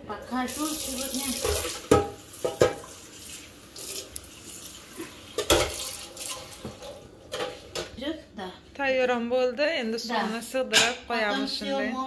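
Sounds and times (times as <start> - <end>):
dishes and utensils clattering: 1.3 - 3.1, 4.9 - 8.0.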